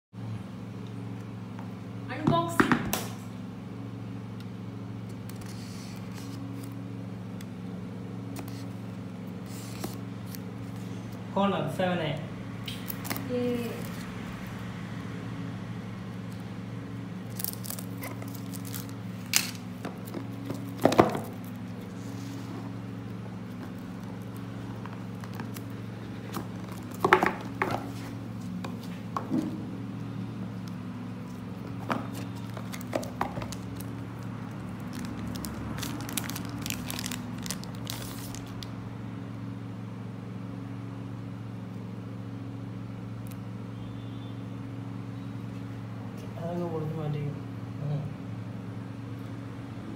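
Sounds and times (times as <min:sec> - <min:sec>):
steady low hum: 0:00.2 - 0:49.9
plastic film crinkling: 0:17.2 - 0:28.9, 0:30.6 - 0:38.8
cardboard box being opened: 0:23.5 - 0:28.9.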